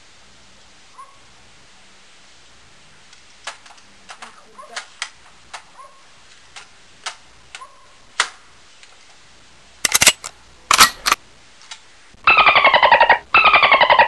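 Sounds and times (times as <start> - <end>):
toy rifle plastic clacks: 3.4 - 5.7, 9.8 - 11.8.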